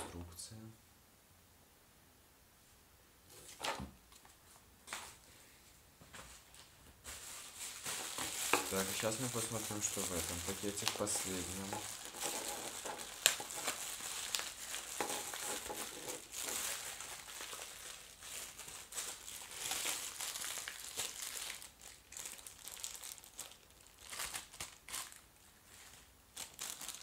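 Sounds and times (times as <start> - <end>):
plastic mailer bag crinkling: 7.0 - 25.3, 26.3 - 27.0.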